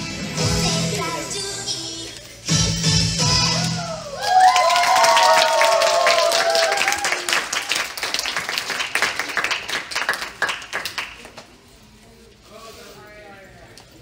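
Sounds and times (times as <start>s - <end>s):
high voices cheering: 3.6s - 7.6s
audience clapping: 4.2s - 11.6s.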